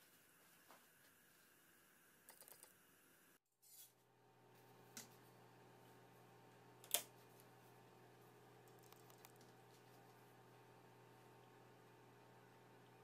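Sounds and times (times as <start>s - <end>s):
low steady hum: 4.1s - 13.0s.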